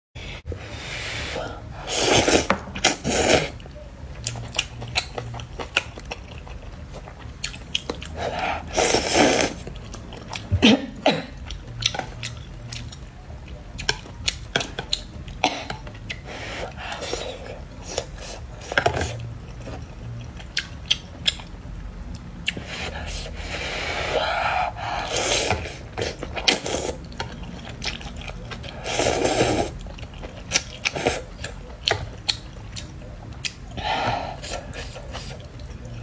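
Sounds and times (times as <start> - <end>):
person slurping noodles: 0.8 - 3.6, 8.2 - 9.6, 22.6 - 27.0, 28.8 - 29.8
close chewing: 4.1 - 10.6, 25.0 - 33.8.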